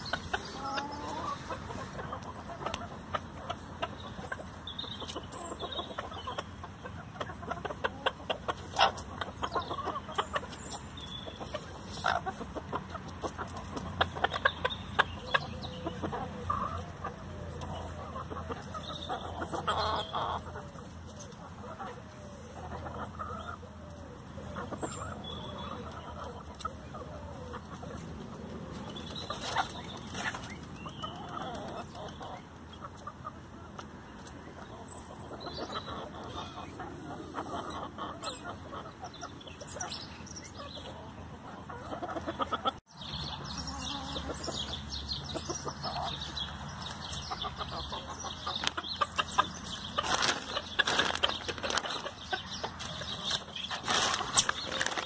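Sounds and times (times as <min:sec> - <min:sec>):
chickens clucking: 0:00.0 - 0:55.0
beaks clicking and rustling grass: 0:49.4 - 0:55.0.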